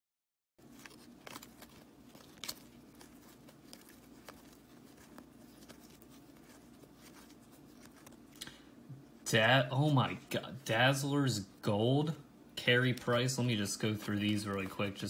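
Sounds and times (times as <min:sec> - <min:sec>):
low steady hum: 0:00.6 - 0:15.0
cards flicking and sliding: 0:00.7 - 0:08.3.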